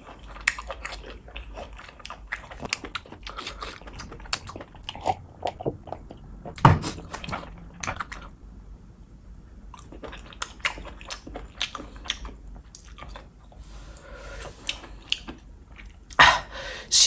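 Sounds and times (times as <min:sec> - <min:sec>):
chewing and biting: 0:00.0 - 0:08.4, 0:09.7 - 0:13.6, 0:14.4 - 0:16.2
deep thump: 0:05.6 - 0:07.4.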